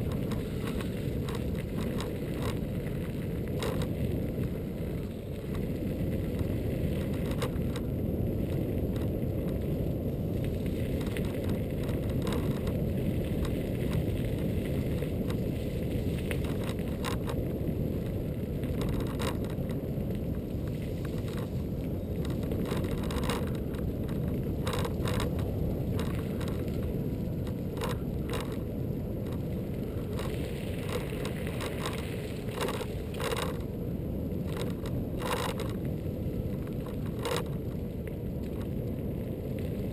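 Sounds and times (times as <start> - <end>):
clicks and rattles from bumps: 0.0 - 4.1, 10.9 - 14.1, 18.6 - 19.8, 22.2 - 28.6, 30.1 - 33.7, 34.4 - 36.0, 36.6 - 37.7
wind and tyre rumble: 0.0 - 39.9.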